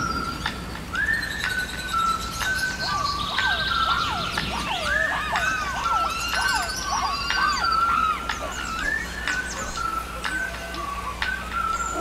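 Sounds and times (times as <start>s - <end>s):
steady held tones: 0.0s - 12.0s
whooping animal calls: 2.4s - 12.0s.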